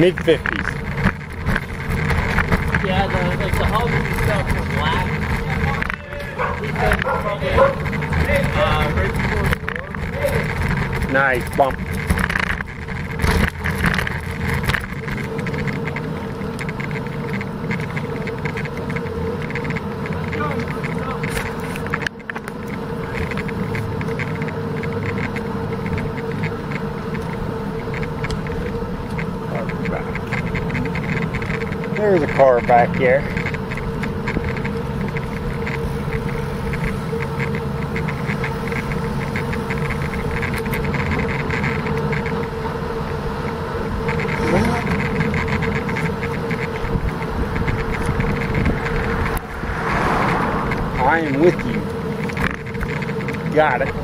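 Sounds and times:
bicycle rattling over bricks: 0.0 - 54.0
bicycle tyre noise on asphalt: 0.0 - 54.0
constant hum: 0.0 - 54.0
light regular ticking: 0.0 - 54.0
wind rumble on microphone: 43.9 - 54.0.

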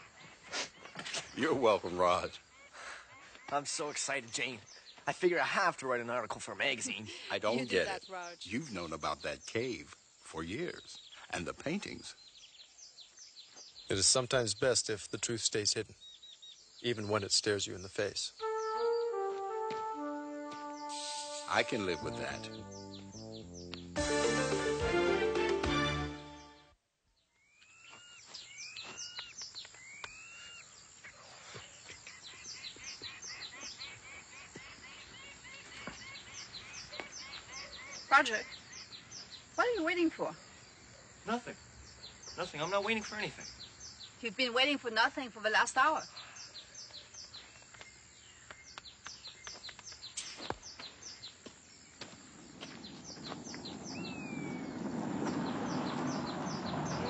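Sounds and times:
quick descending bird chirps: 18.4 - 24.2, 52.7 - 57.0
music: 18.4 - 26.7
whistled bird calls: 20.6 - 23.9, 27.4 - 30.7, 52.6 - 57.0.

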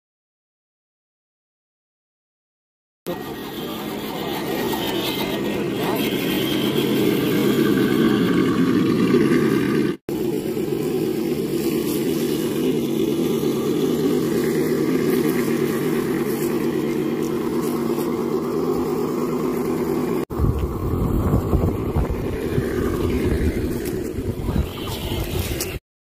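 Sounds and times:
electric motors humming: 3.1 - 25.8
uneven low rumble: 10.9 - 25.8.

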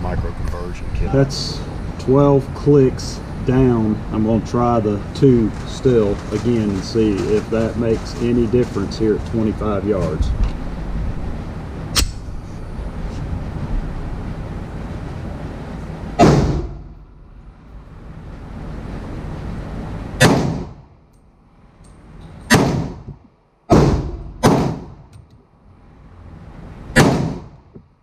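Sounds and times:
pistol shots with short echo: 16.2 - 16.8, 20.2 - 20.7, 22.5 - 23.0, 23.7 - 24.9, 27.0 - 27.5.

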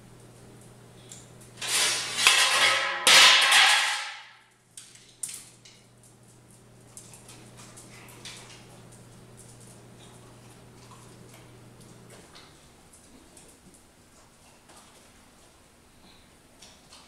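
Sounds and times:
loud clattering crashes: 1.6 - 4.3.

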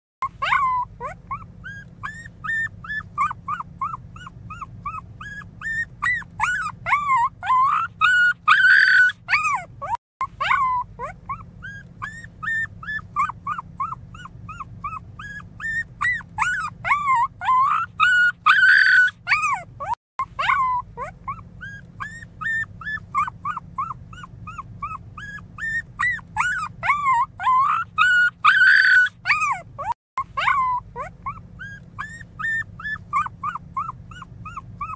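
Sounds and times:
puppy whimpering and crying: 0.2 - 34.9.

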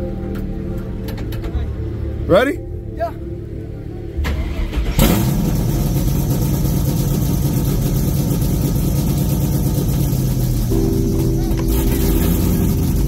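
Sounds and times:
car engine running: 4.9 - 13.0.

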